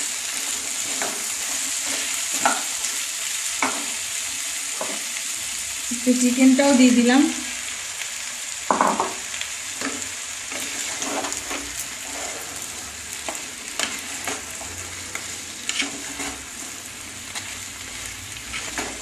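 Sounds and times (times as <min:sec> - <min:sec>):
spatula scraping and knocking pan: 0:00.0 - 0:03.0, 0:03.6 - 0:04.0, 0:04.7 - 0:05.1, 0:09.8 - 0:17.7, 0:18.4 - 0:19.0
food sizzling in hot oil: 0:00.0 - 0:19.0.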